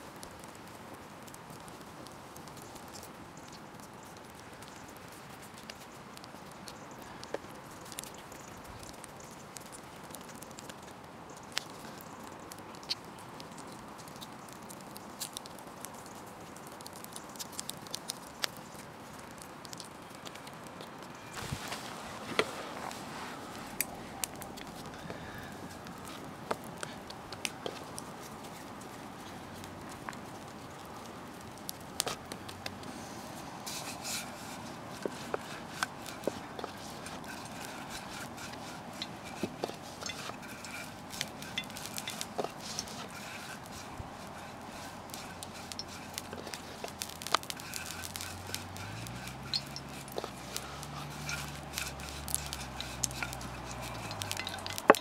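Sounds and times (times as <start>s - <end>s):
faint steady hiss: 0.0s - 55.0s
hands patting sticky dough: 35.0s - 55.0s.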